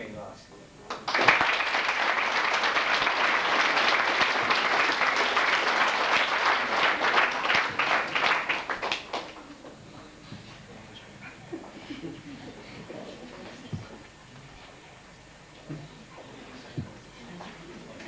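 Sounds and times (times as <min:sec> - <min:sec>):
audience applauding: 0:00.9 - 0:09.8.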